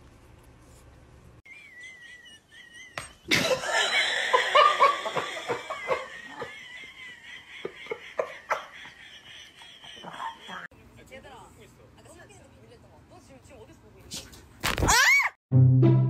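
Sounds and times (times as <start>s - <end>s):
person laughing: 1.5s - 10.7s.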